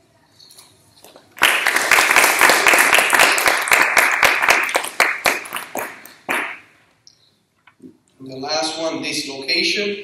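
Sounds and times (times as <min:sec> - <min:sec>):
audience applauding: 0:01.3 - 0:06.6.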